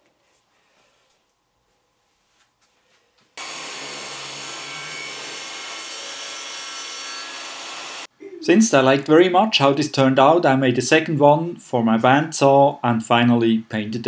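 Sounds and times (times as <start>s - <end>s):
shop vac running: 3.4s - 8.1s
table saw cutting a board: 3.4s - 8.1s.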